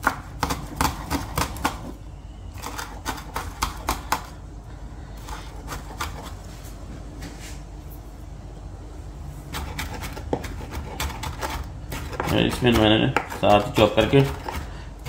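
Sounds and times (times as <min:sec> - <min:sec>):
knife chopping on wooden board: 0:00.0 - 0:01.9, 0:02.6 - 0:04.3, 0:09.5 - 0:14.7.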